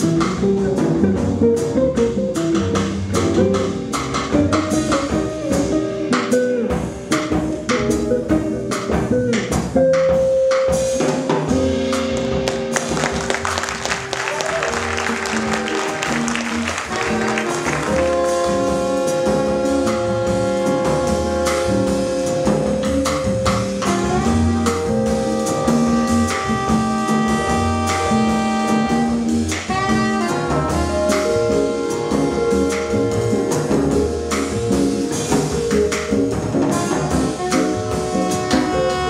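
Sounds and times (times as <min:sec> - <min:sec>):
drum kit with cymbals: 0:00.0 - 0:39.0
upright bass: 0:00.0 - 0:39.0
trumpet: 0:11.8 - 0:39.0
saxophone: 0:12.5 - 0:39.0.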